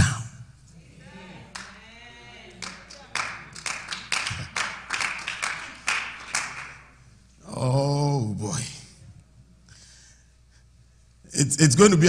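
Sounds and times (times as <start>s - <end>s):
hand claps: 2.6s - 6.9s.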